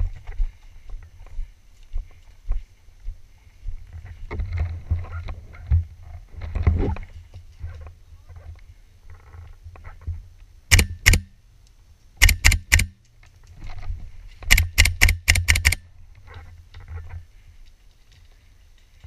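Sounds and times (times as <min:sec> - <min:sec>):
muffled airsoft rifle shots: 0:10.7 - 0:11.3, 0:12.2 - 0:13.0, 0:14.5 - 0:15.8.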